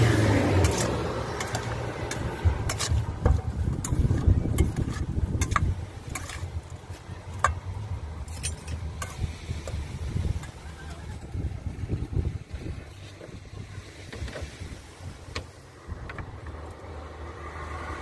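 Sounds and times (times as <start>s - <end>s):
steady low rumble: 0.0s - 17.4s
spoon clinking and scraping bowl: 0.6s - 6.7s, 8.2s - 11.0s.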